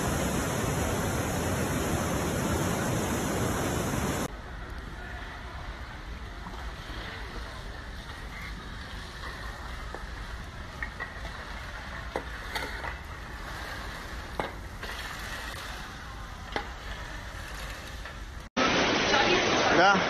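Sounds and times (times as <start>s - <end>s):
outdoor rushing noise: 0.0s - 4.4s.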